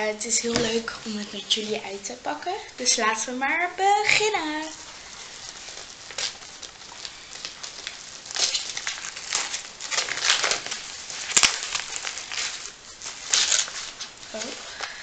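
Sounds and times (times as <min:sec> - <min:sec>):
plastic bag crinkling: 0:00.0 - 0:15.0.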